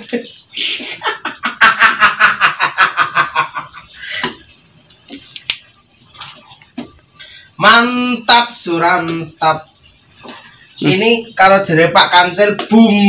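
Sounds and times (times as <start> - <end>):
man laughing heartily: 0.6 - 4.4.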